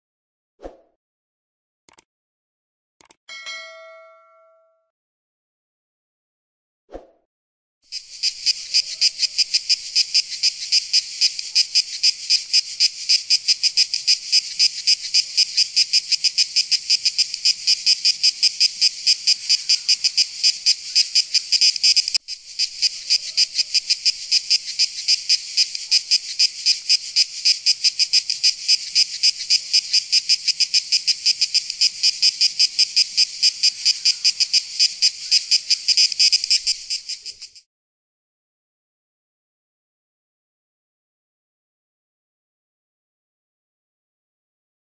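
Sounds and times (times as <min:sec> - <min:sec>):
cicada buzzing: 0:07.9 - 0:37.6.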